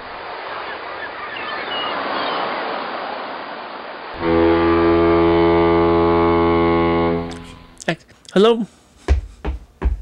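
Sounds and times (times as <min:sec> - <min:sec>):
sea wash: 0:00.0 - 0:07.2
ship's horn blast: 0:04.2 - 0:07.8.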